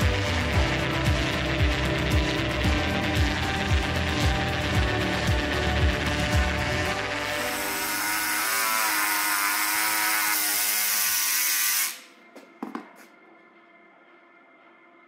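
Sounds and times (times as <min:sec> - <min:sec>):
belt sander on fibreglass: 0:01.0 - 0:12.0.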